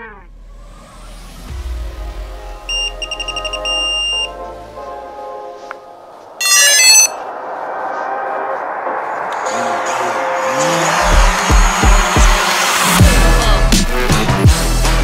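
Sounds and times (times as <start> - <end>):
chirping electronic chime: 2.7 - 4.3, 6.4 - 7.2
high electronic beeps: 2.7 - 4.3, 6.4 - 7.2.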